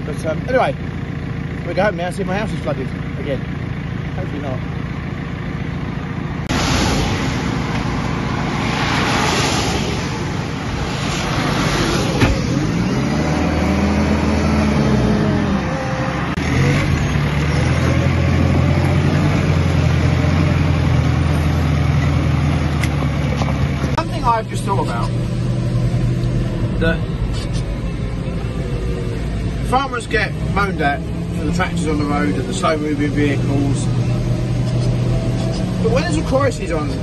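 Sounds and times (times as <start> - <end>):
diesel engine revving and idling: 0.0 - 37.0
car tyres hissing on wet road: 6.5 - 12.6.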